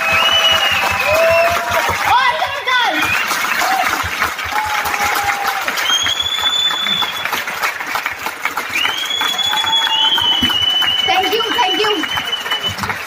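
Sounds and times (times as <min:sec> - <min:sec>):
audience clapping: 0:00.0 - 0:13.0
high-pitched whistles: 0:05.8 - 0:07.3, 0:08.7 - 0:12.9.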